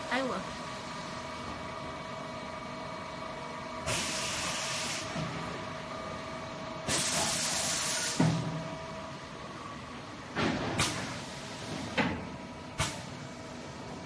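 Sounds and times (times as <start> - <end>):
air hissing: 6.9 - 8.2.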